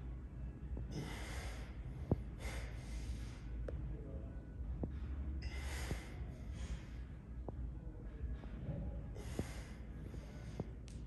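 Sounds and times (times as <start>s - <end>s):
steady low hum: 0.0s - 11.0s
person breathing hard: 0.9s - 3.5s, 5.4s - 7.0s, 9.2s - 10.8s.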